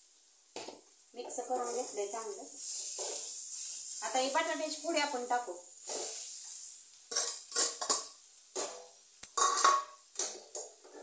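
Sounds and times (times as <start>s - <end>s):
spoon scraping a pan: 0.7s - 4.1s, 5.8s - 11.0s.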